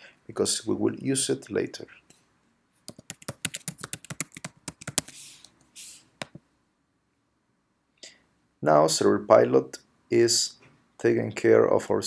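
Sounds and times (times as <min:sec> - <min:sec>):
computer keyboard typing: 0:02.9 - 0:05.3
short hissy noises: 0:05.0 - 0:06.2.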